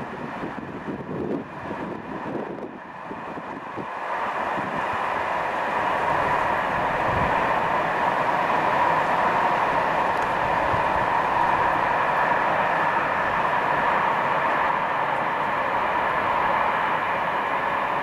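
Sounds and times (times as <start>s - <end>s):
wind gusts on microphone: 0.0s - 13.9s
train rolling past: 0.0s - 18.0s.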